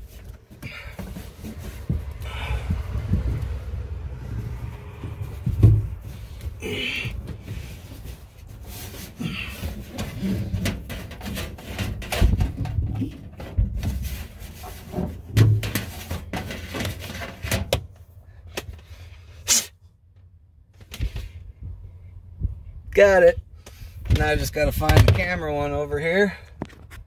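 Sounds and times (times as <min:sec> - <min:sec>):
cable scraping sheet metal: 0:02.9 - 0:17.7
louder thumps: 0:04.5 - 0:07.7.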